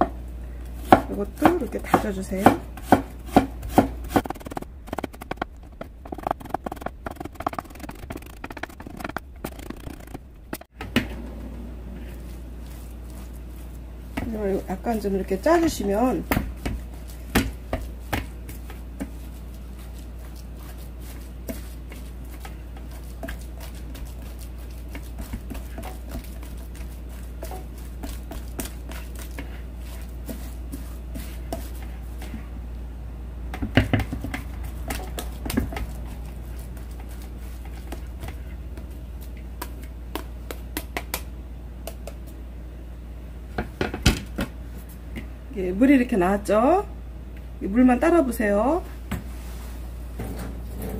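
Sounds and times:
spatula scraping metal strainer: 0:03.6 - 0:10.7.

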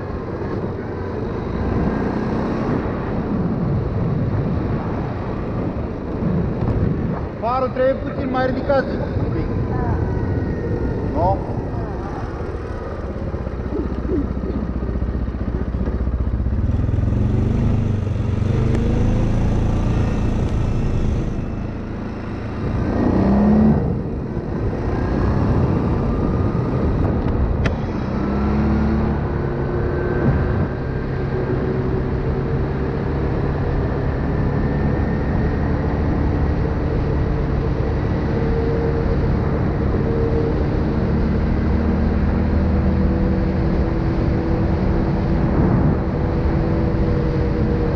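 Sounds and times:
atv engine running: 0:10.1 - 0:47.9.

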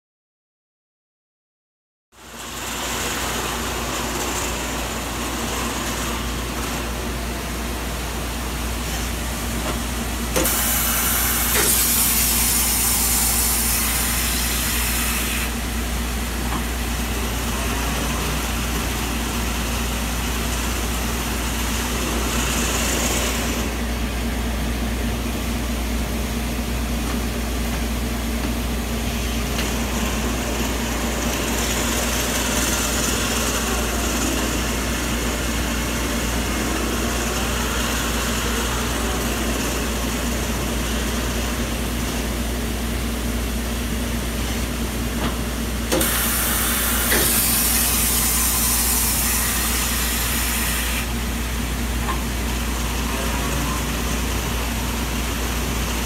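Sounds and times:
lathe humming: 0:28.3 - 0:43.0.

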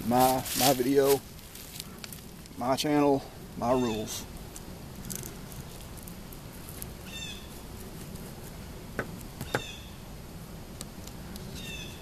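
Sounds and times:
low outdoor background: 0:00.0 - 0:12.0
bird calling: 0:03.6 - 0:04.3, 0:07.0 - 0:07.6, 0:09.4 - 0:10.0, 0:11.5 - 0:12.0.

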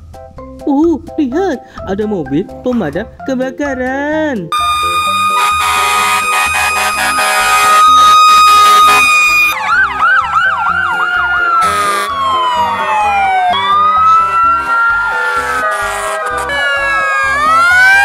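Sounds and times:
fire truck sirens: 0:04.5 - 0:18.0.

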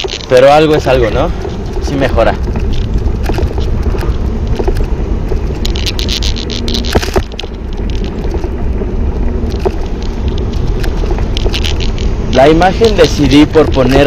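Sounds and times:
sharp crackles: 0:00.0 - 0:14.0
wind buffeting microphone: 0:00.0 - 0:14.0.

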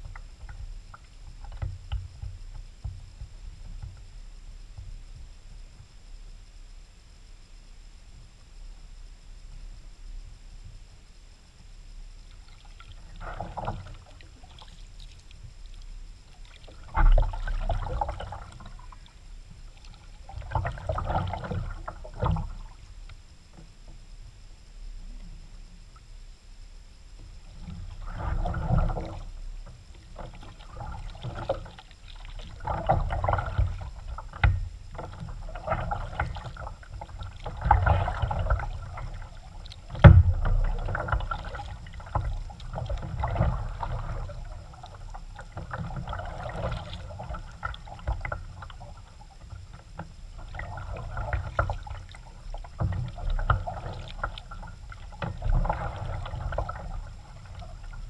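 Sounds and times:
kayak paddle splashing: 0:12.4 - 0:22.8, 0:27.3 - 0:58.0.

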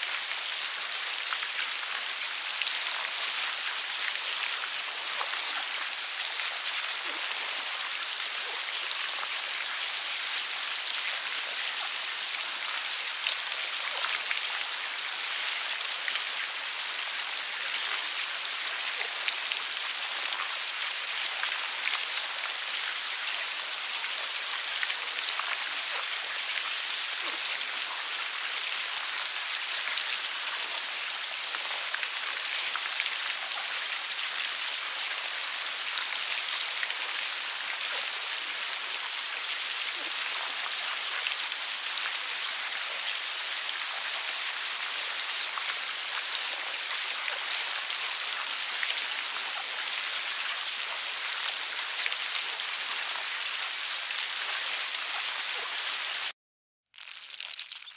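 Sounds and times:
maggots squirming crackle: 0:56.9 - 0:57.9.

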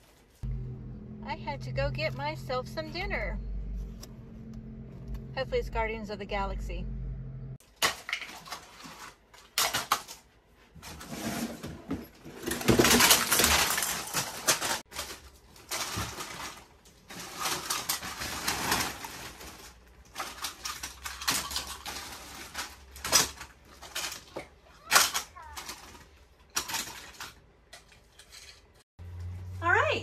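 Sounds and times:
plastic toys rustling and clattering: 0:07.6 - 0:29.6.

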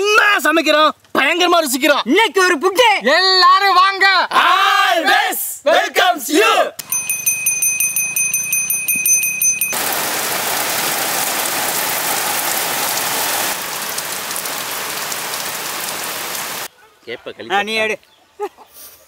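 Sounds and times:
rain on trees and thatched roof: 0:00.0 - 0:02.4, 0:08.7 - 0:16.7
small brass bell ringing: 0:06.8 - 0:09.8.

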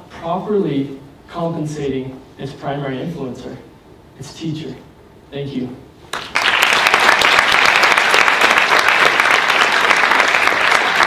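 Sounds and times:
large audience applauding: 0:06.1 - 0:11.0.

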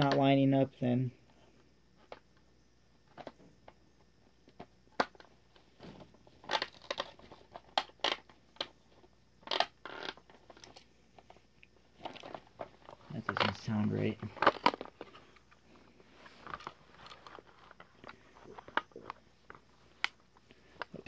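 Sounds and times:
plastic parts clicking: 0:04.5 - 0:08.8, 0:12.0 - 0:15.5.

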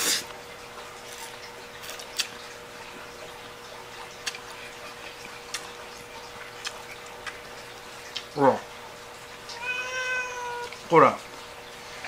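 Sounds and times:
chewing clicks: 0:04.0 - 0:05.7, 0:06.6 - 0:07.4.

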